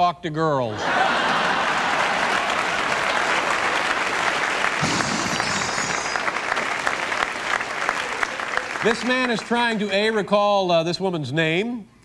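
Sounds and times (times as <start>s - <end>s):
studio audience applauding: 0.8s - 10.3s.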